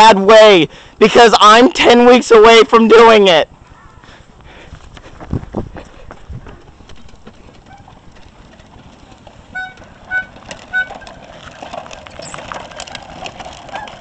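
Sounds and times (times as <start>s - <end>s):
tricycle wheels clattering on asphalt: 0.0s - 14.0s
short squeaks: 9.5s - 12.6s.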